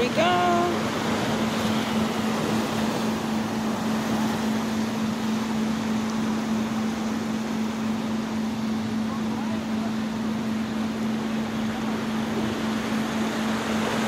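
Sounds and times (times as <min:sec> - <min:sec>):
surf breaking on rocky shore: 0:00.0 - 0:07.8
constant low hum: 0:00.0 - 0:14.0.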